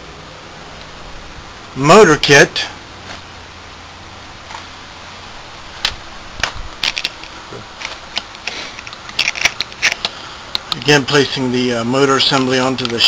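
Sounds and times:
metal parts clicking and clinking: 6.8s - 10.1s.

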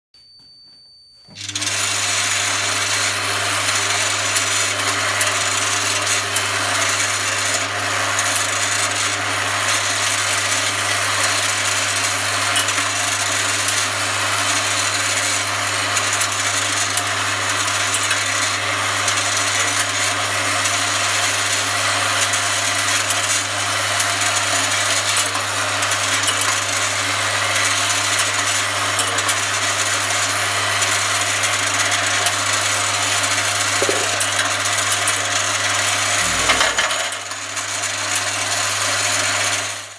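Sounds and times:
metal parts rattling in steel bowl: 33.5s - 35.1s, 35.8s - 37.4s
low machine hum: 36.1s - 37.2s.

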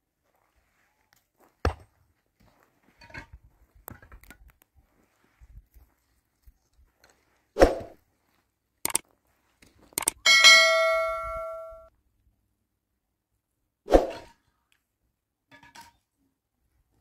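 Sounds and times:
mouse clicks: 10.0s - 10.2s
bell ding: 10.3s - 11.9s.

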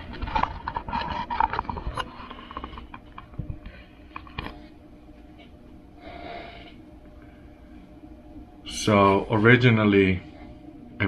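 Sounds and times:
faint steady hum: 0.0s - 11.0s
person breathing: 6.0s - 7.8s.

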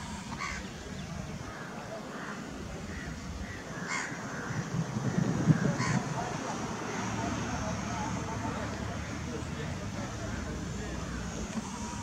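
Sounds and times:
bird calling: 0.0s - 6.1s.

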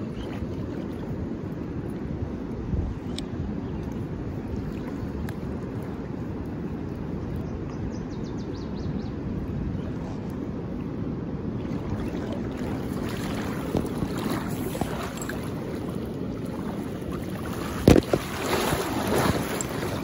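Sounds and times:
wind buffeting microphone: 0.0s - 20.0s
river current rushing: 11.6s - 20.0s
thump and water splashing: 17.5s - 19.9s.

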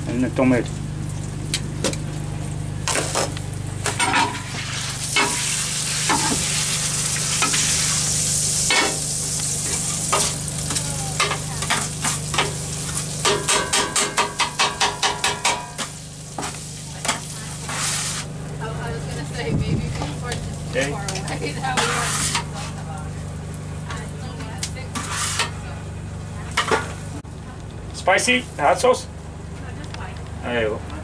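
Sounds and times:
meat sizzling on a griddle: 4.1s - 25.5s.

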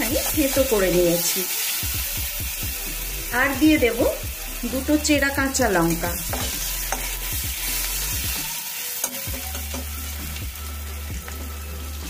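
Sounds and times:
food sizzling in hot oil: 0.0s - 12.0s
spatula scraping pan: 5.7s - 8.3s.

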